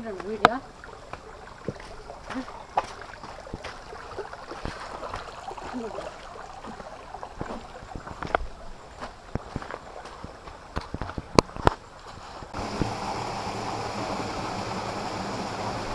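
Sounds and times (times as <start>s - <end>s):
stream babbling over stones: 0.0s - 15.9s.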